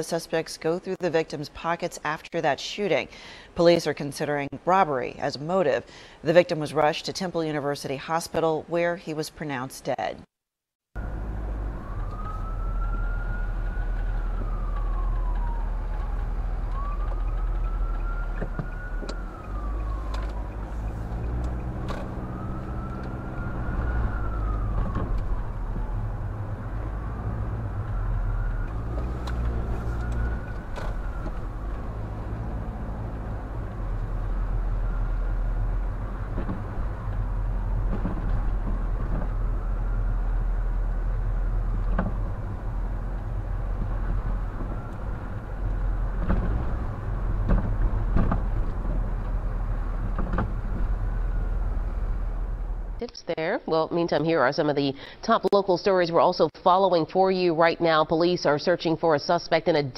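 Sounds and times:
siren wailing: 11.0s - 48.0s
car driving rumble: 11.0s - 53.0s.

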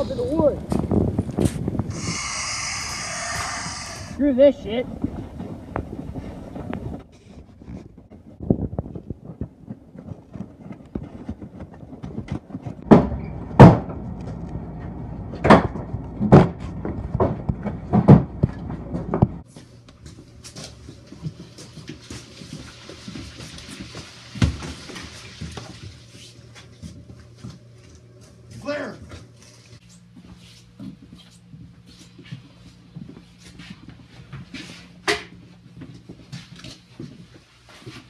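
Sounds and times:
steady low hum: 0.0s - 22.7s, 26.0s - 38.0s
hurried footsteps: 0.0s - 38.0s
loud knocks and bangs: 12.8s - 14.0s, 15.4s - 19.4s.

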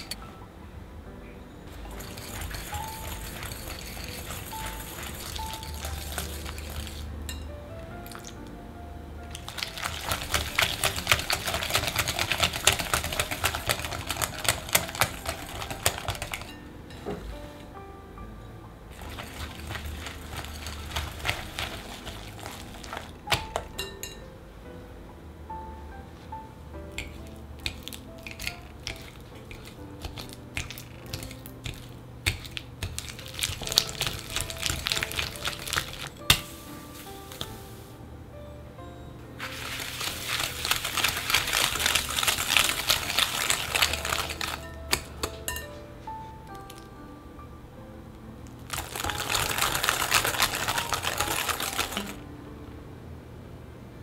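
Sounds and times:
whisk scraping glass bowl: 0.0s - 0.2s, 1.7s - 7.1s, 9.4s - 16.6s, 18.9s - 24.2s, 27.0s - 36.5s, 39.4s - 45.6s, 48.8s - 52.2s
background music: 0.0s - 54.0s
whisk clicking against glass bowl: 1.9s - 7.4s, 9.4s - 16.6s.

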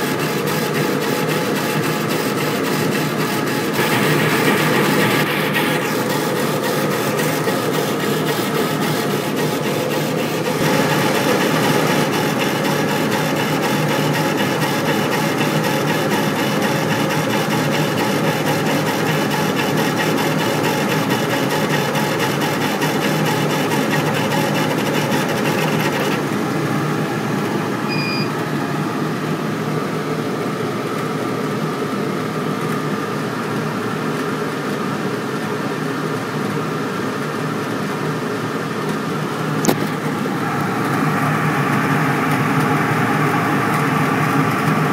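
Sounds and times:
laser engraver whirring and ticking: 0.0s - 26.4s.

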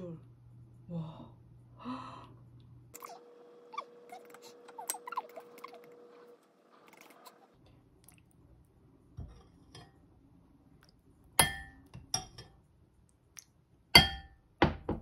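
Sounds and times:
cutlery clinking against bowls: 11.4s - 12.6s.

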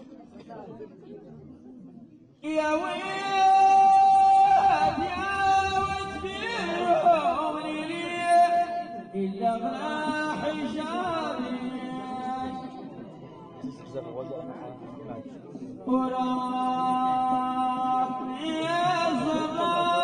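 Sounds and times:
group of voices singing: 2.6s - 8.2s.

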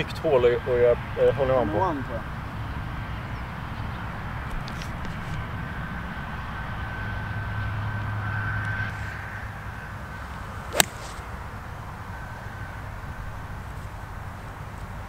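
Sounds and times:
golf club striking ball: 10.7s - 11.3s
golf club swish: 10.7s - 11.3s.

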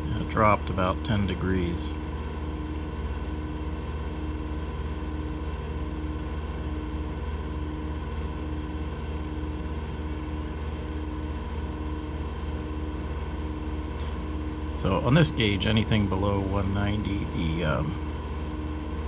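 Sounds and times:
engine running at full throttle: 5.9s - 19.0s.

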